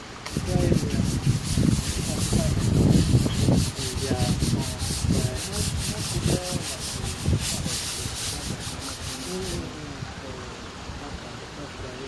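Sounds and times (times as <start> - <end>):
low rumbling thumps: 0.0 - 6.5
rhythmic scrubbing strokes: 0.3 - 9.8.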